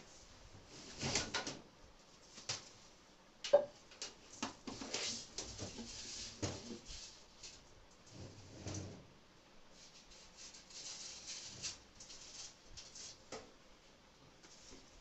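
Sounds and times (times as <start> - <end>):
scraping and rustling: 9.8 - 13.4.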